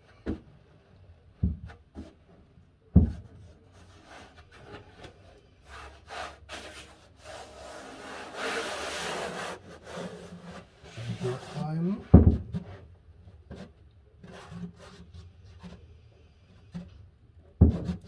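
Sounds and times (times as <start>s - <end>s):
knocks against wood: 2.9s - 3.3s, 12.1s - 12.6s, 17.6s - 18.0s
hand rubbing cork sheet: 3.1s - 12.7s.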